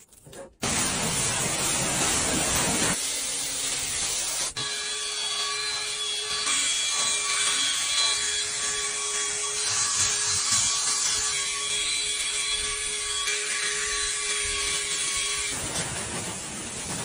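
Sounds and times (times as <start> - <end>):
foam spray hiss: 0.6 - 4.6
drill motor whine: 4.6 - 15.5.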